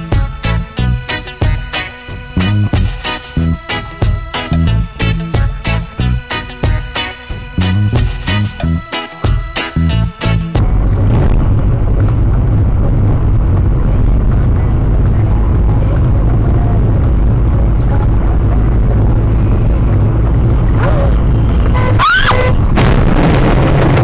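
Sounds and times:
car road and engine rumble: 9.9s - 24.0s.

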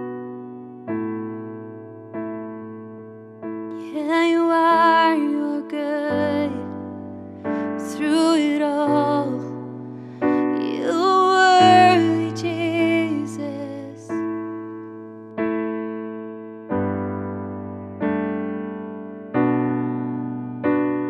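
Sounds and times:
piano chords: 0.0s - 21.0s
woman singing slow song: 3.8s - 14.2s.

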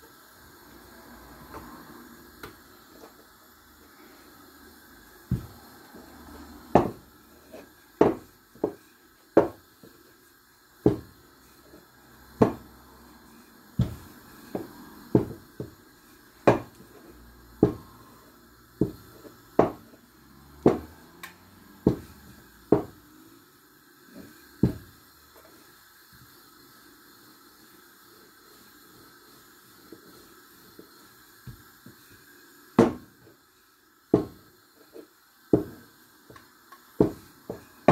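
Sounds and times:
rolling pin knocking on worktop: 5.3s - 5.5s, 6.7s - 7.0s, 8.0s - 8.8s, 9.4s - 9.6s, 10.8s - 11.1s, 12.4s - 12.7s, 13.8s - 15.7s, 16.4s - 16.8s, 17.6s - 17.8s, 18.8s - 19.9s, 20.6s - 20.9s, 21.8s - 22.1s, 22.7s - 23.0s, 24.6s - 24.9s, 32.8s - 33.1s, 34.1s - 34.4s, 35.5s - 35.8s, 37.0s - 37.9s.

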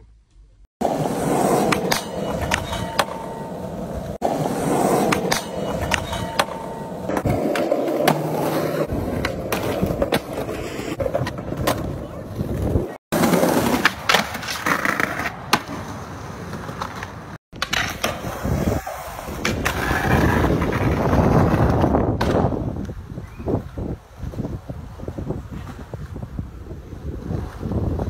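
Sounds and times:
skateboard clacks: 0.8s - 18.4s
skateboard wheels rolling: 0.8s - 28.0s.

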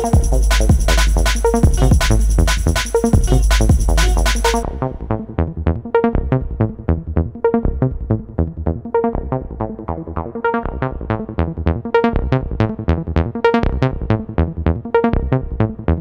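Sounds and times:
electronic music with steady beat: 0.0s - 6.4s.

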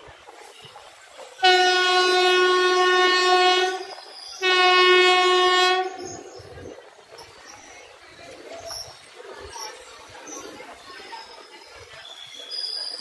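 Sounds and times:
locomotive horn blasts: 1.4s - 6.2s.

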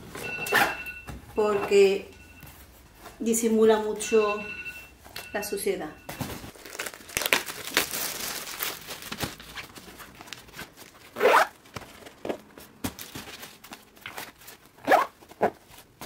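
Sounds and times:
plastic wrap crinkling and tearing: 6.5s - 16.0s.

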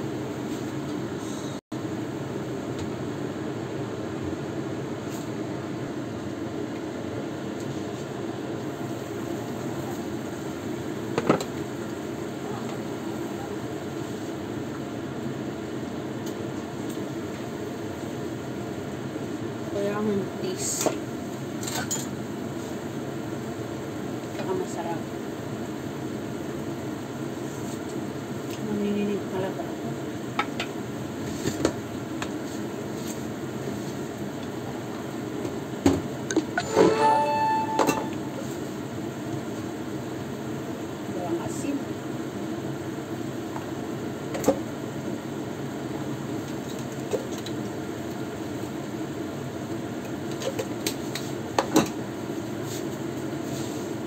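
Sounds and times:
gas burner noise: 0.0s - 36.6s, 38.2s - 54.0s.

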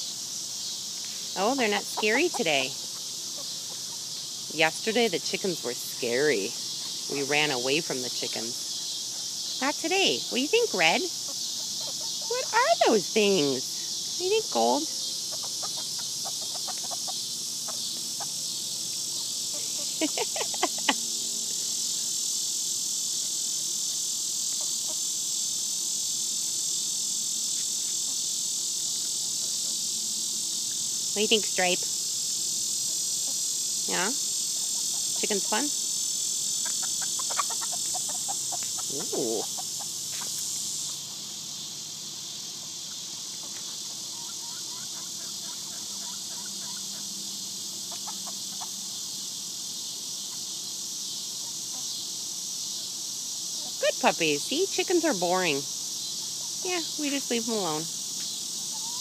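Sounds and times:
insects buzzing and shrilling: 0.0s - 59.0s
hens clucking: 1.3s - 4.7s, 9.6s - 13.1s, 15.3s - 18.4s, 19.2s - 21.0s, 36.6s - 40.3s, 47.8s - 48.8s, 58.7s - 59.0s.

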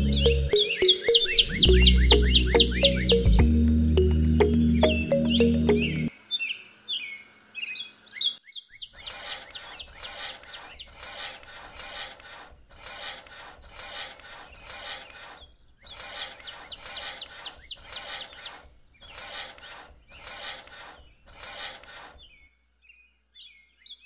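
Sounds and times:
birds chirping: 0.0s - 24.0s
chaff-cutter rasping grind: 9.0s - 22.4s.

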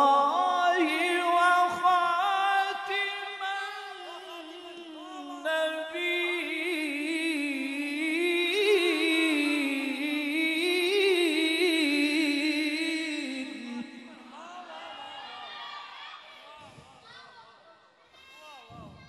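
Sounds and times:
man reciting melodically: 0.0s - 14.7s.

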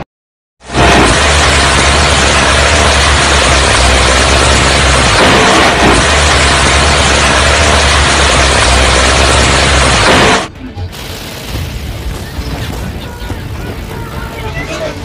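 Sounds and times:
deck gun roaring: 0.6s - 10.5s
gunfire and impact effects: 2.2s - 12.9s.

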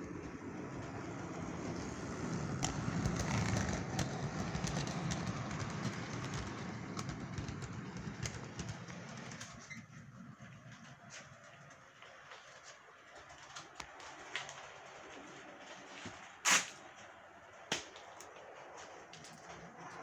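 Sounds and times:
model train rumbling: 0.0s - 12.2s
wheels clicking over rail joints: 0.0s - 20.0s.

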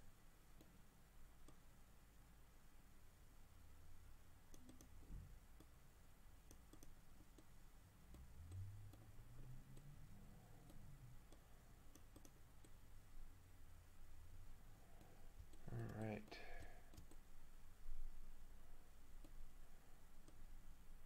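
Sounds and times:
steady low hum: 0.0s - 21.0s
computer mouse clicks: 1.4s - 1.7s, 4.5s - 5.0s, 6.4s - 7.5s, 8.1s - 9.1s, 9.7s - 10.0s, 10.6s - 12.8s, 15.0s - 17.3s, 19.2s - 19.4s, 20.2s - 20.5s.

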